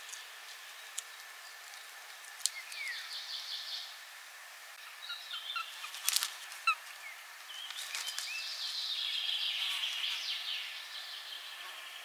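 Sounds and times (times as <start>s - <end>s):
high wavering bird calls: 2.5s - 4.0s, 4.8s - 12.0s
wings fluttering in twigs: 5.7s - 8.7s.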